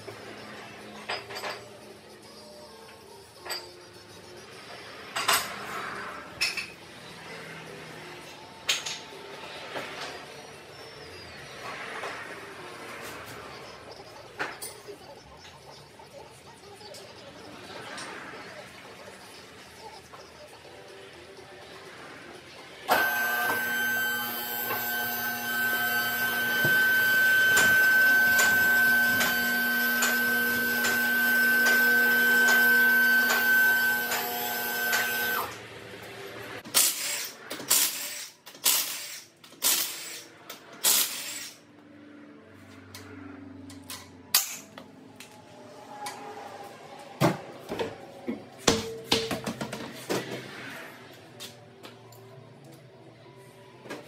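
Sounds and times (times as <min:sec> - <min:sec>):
impact wrench bursts: 0:22.9 - 0:35.5, 0:36.6 - 0:41.6
hydraulic pump motor humming: 0:22.9 - 0:35.6.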